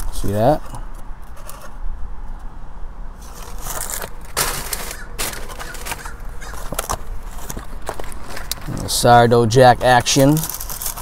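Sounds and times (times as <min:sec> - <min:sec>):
paper wrapper crinkling: 0:03.2 - 0:09.1, 0:09.7 - 0:11.0.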